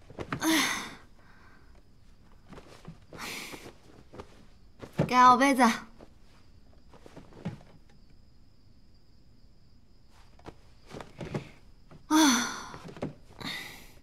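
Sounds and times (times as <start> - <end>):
bedding rustling and knocking: 0.0 - 0.6, 1.7 - 8.1, 10.1 - 13.6
woman sighing: 0.4 - 1.1, 12.1 - 14.0.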